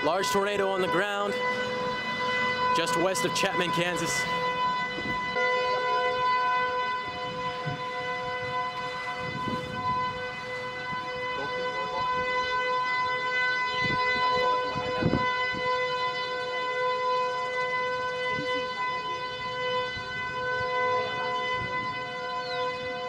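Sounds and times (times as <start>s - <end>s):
warning siren steady tone: 0.0s - 23.0s.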